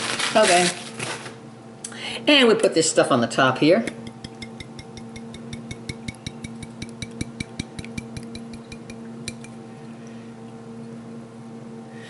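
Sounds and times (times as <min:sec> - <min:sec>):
steady low hum: 0:01.4 - 0:12.0
jar clinking on dish: 0:03.9 - 0:09.6.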